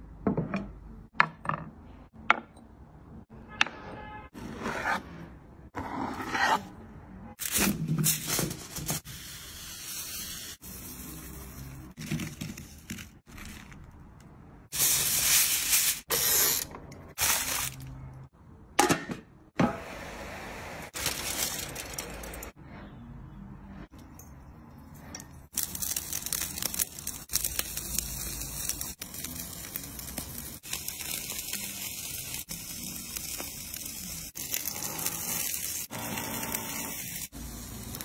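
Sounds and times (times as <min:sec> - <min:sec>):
food sizzling on a grill: 0:08.2 - 0:11.9, 0:25.6 - 0:38.0.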